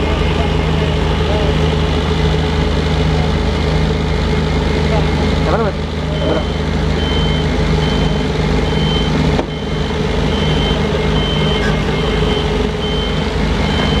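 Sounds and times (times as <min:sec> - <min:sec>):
heavy diesel engine running: 0:00.0 - 0:14.0
electronic warning alarm beeps: 0:06.1 - 0:14.0.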